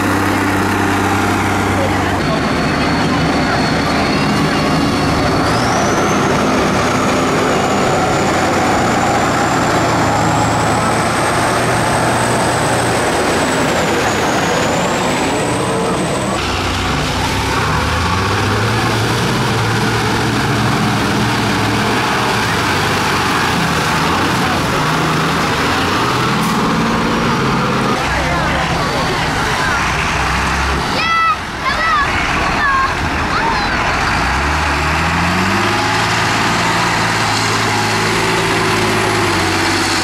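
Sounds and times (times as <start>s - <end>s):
tractor diesel engine straining: 0.0s - 40.0s.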